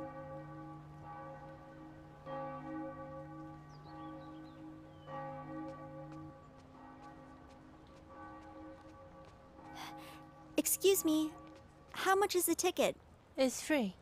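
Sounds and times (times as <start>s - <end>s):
church bell tolling: 0.0s - 7.5s.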